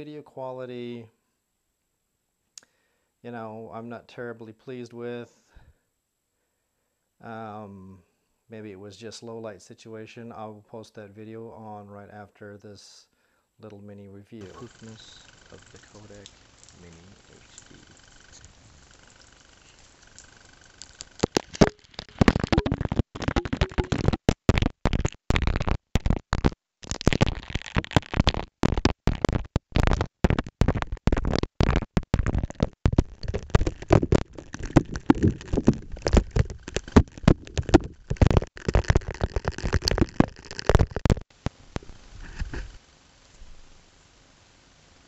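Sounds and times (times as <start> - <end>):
water spattering on camera: 14.4 - 25.1, 29.8 - 42.8.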